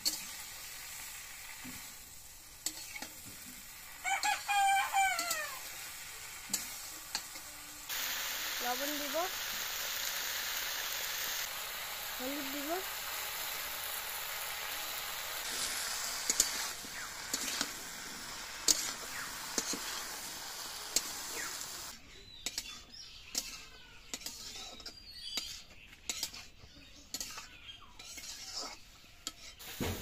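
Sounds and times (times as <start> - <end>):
spatula clinking and scraping pan: 0.0 - 0.4, 1.6 - 5.7, 6.3 - 7.6, 14.6 - 17.8, 18.6 - 20.1, 22.4 - 29.7
vegetables sizzling in a pan: 0.0 - 30.0.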